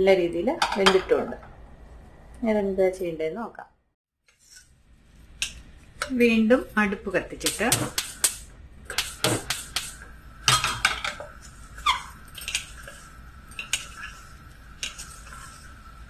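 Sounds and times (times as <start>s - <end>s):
wooden spatula scraping a pot: 10.5s - 16.0s.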